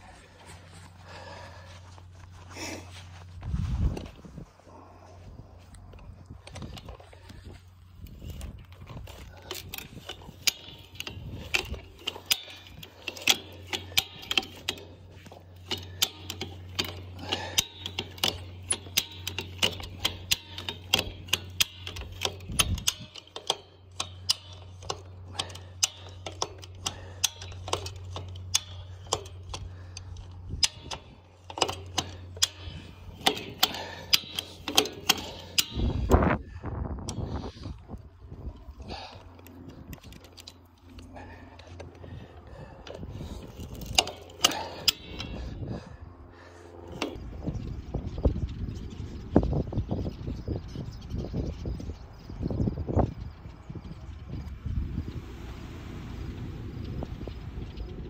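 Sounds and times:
wire stretcher ratchet clicking: 6.4 - 48.4.

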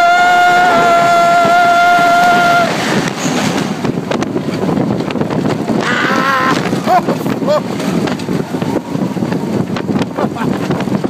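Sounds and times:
person crying out: 0.0 - 2.7, 5.8 - 7.7
person yelling: 0.0 - 2.7, 5.8 - 7.6
roller coaster train rumbling: 0.0 - 11.0
wind rush: 0.0 - 11.0.

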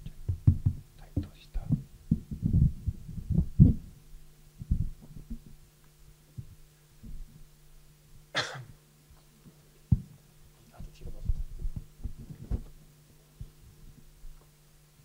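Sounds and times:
microphone handling thumps: 0.0 - 5.6, 6.4 - 7.4, 9.9 - 10.2, 10.8 - 12.8
steady low hum: 0.0 - 15.0.

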